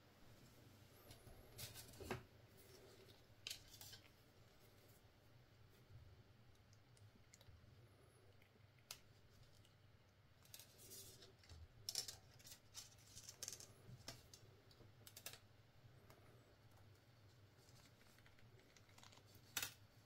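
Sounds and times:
low steady hum: 0.0 - 20.0
small objects clicking and scraping: 10.4 - 15.4.

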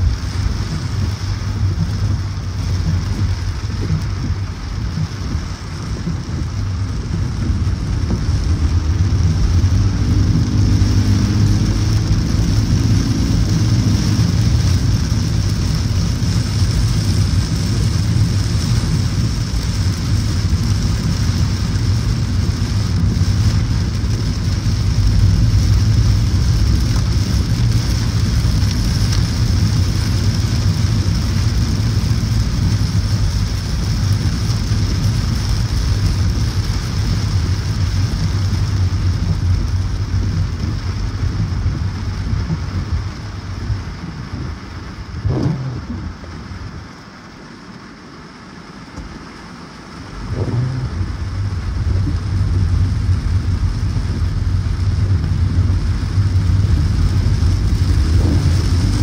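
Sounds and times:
rain and water spray hissing: 0.0 - 59.0
road and tyre rumble: 0.0 - 59.0.

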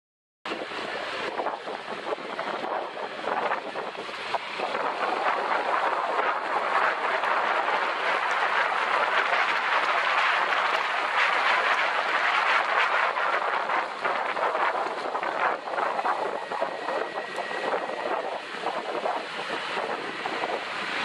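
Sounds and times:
wind on microphone: 0.5 - 21.0
tyres hissing on wet road: 18.4 - 21.0.

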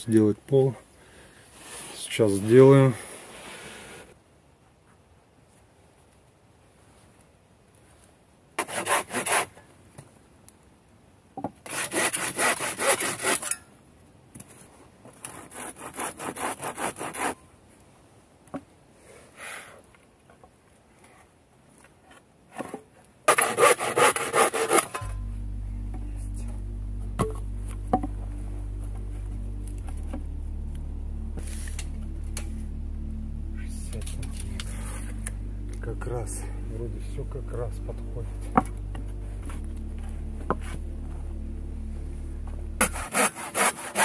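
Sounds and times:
hand saw cutting wood: 8.6 - 9.5, 11.6 - 13.6, 15.2 - 17.4, 23.3 - 25.1, 42.8 - 44.0
background music with low tone: 25.0 - 43.5.

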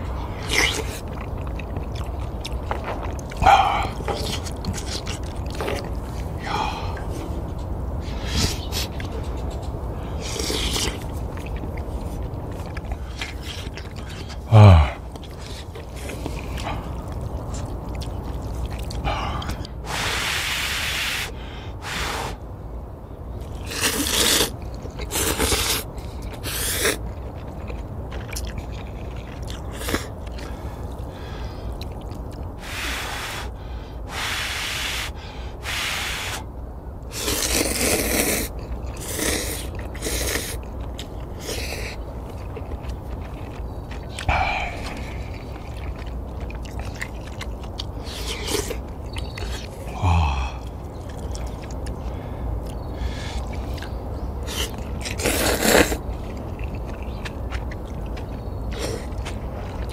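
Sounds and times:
steady low rumble: 0.0 - 20.6
person slurping noodles: 23.6 - 27.0, 37.1 - 40.6, 54.5 - 56.0.

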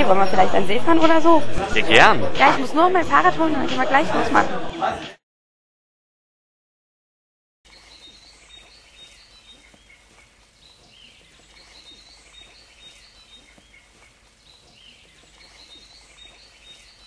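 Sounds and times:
faint birdsong: 7.7 - 17.0.

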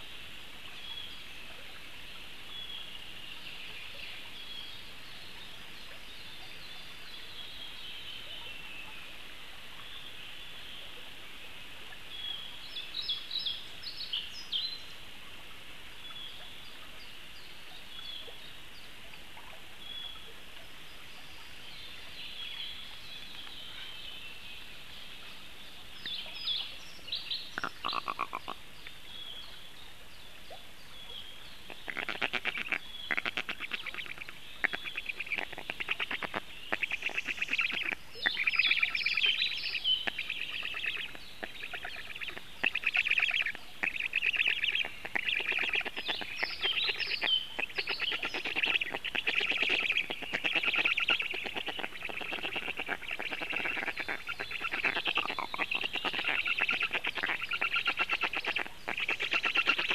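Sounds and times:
faint birdsong: 0.0 - 15.1, 15.9 - 59.9
stork chicks rasping begging calls: 40.0 - 59.9.

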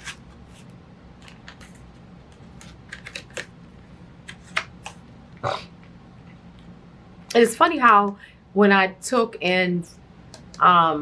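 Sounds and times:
paper pages rustling: 0.0 - 3.5, 4.2 - 5.0
faint low hum: 0.0 - 11.0.

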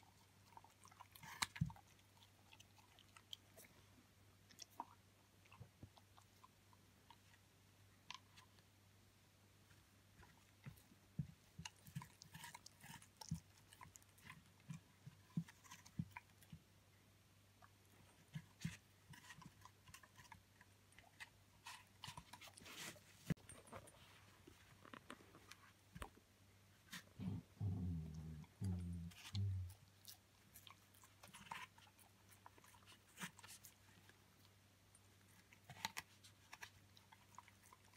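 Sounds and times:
puppy crunching apple: 0.0 - 7.4, 10.2 - 16.7, 26.9 - 37.9.

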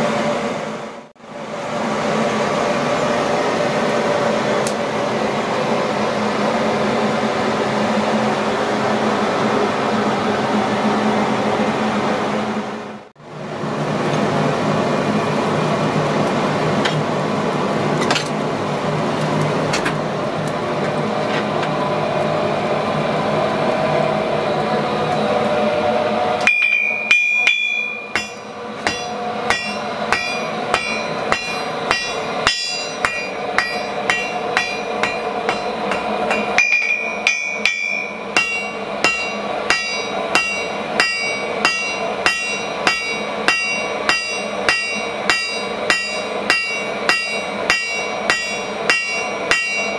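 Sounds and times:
hammer ringing on anvil: 26.4 - 49.9.

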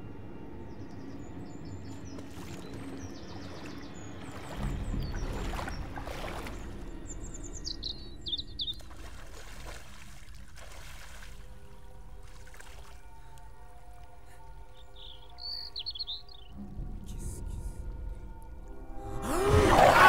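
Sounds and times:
low steady drone: 0.0 - 9.3, 11.2 - 20.0
birds chirping trills: 0.0 - 20.0
water splashing as person wades: 2.1 - 7.3, 8.6 - 13.3.

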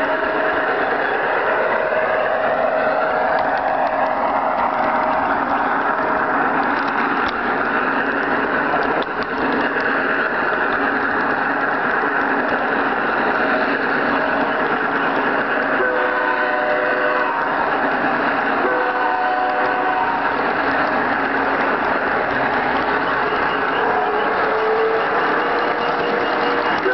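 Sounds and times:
model train motor rattling: 4.8 - 15.7
train horn chord: 15.7 - 17.7, 18.6 - 20.3, 23.7 - 26.9.

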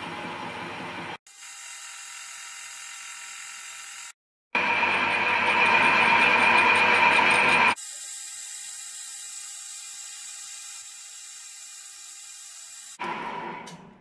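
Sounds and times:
metal lathe running with whine: 4.6 - 7.8.

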